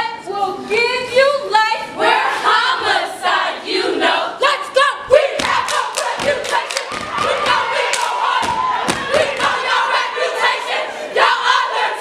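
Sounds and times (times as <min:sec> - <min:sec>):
women chanting and shouting in unison: 0:00.0 - 0:12.0
foot stomps: 0:08.4 - 0:09.4.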